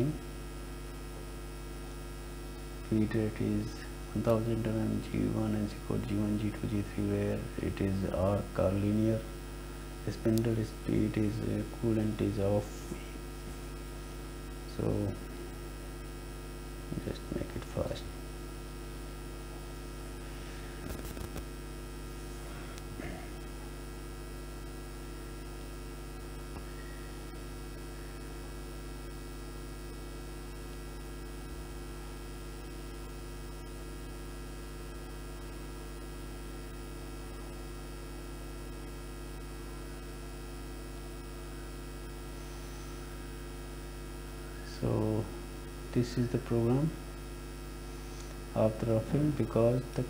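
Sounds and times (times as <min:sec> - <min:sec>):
electrical mains hum: 0:00.0 - 0:50.0.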